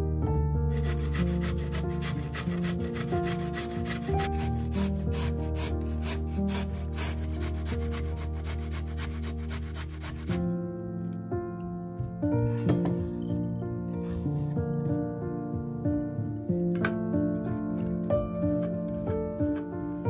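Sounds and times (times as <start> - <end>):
background music: 0.0 - 20.0
carrot rasping on metal grater: 0.7 - 10.4.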